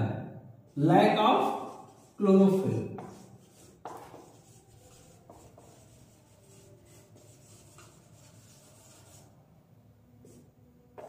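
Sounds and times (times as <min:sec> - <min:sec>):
marker pen writing on whiteboard: 0:01.4 - 0:09.3, 0:10.2 - 0:11.0.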